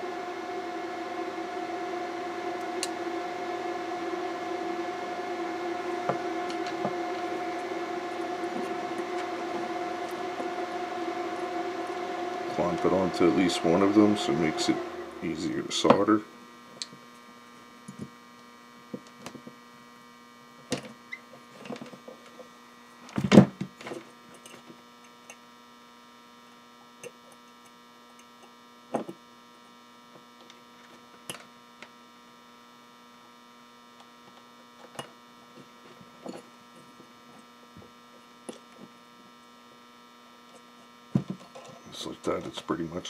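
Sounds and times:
steady electrical hum: 0.0 - 43.0.

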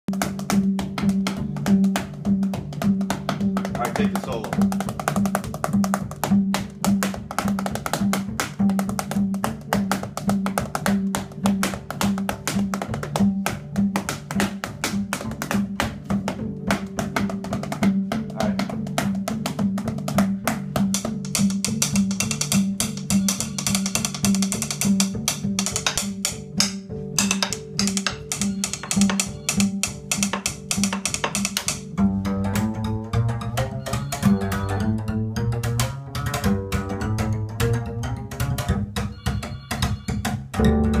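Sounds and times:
drumsticks clicking on bass strings: 0.1 - 41.0
repeating bass line: 31.8 - 41.0.

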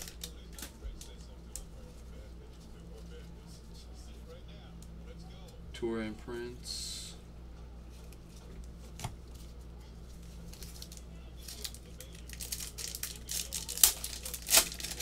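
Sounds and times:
trading cards flicking and rustling: 8.0 - 15.0.

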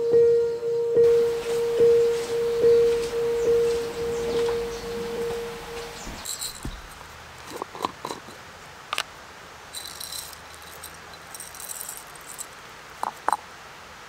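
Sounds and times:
coffee beans rattling in jar: 6.2 - 8.4, 9.7 - 13.4
beans and jar clicking: 6.2 - 9.1, 9.8 - 13.4.

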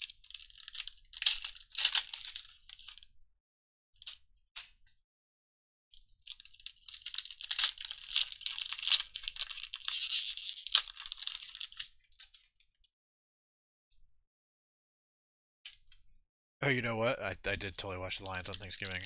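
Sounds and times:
foil wrapper crinkling: 0.0 - 3.0, 6.2 - 12.5, 18.0 - 19.0
foil wrapper snap: 6.3 - 11.9.

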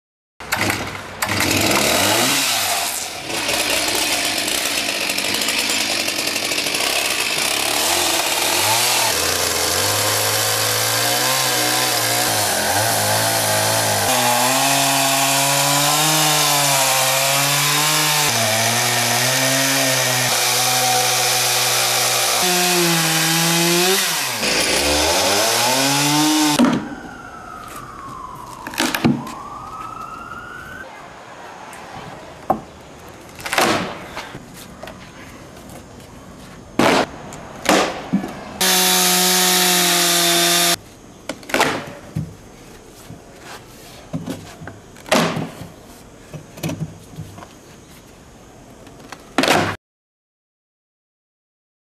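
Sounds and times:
chainsaw cutting log: 0.5 - 26.7, 38.6 - 40.8
siren rising and falling: 25.8 - 30.9.

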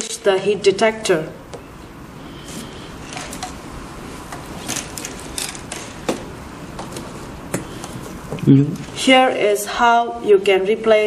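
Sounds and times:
hands handling wires and small parts: 4.3 - 6.2.

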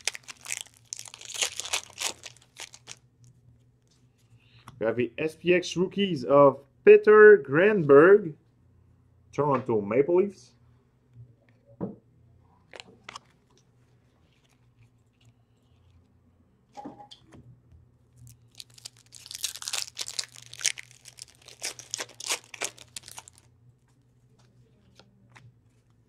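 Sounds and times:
wrapper tearing and crinkling: 0.0 - 3.0, 18.2 - 23.5.

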